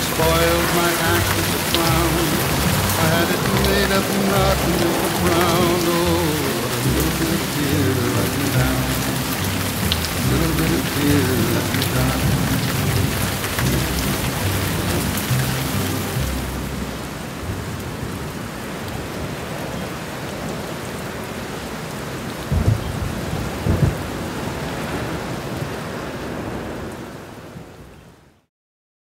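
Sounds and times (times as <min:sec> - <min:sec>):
low thunder rumbles: 0:00.0 - 0:18.3, 0:22.4 - 0:27.3
steady rain: 0:00.0 - 0:28.5.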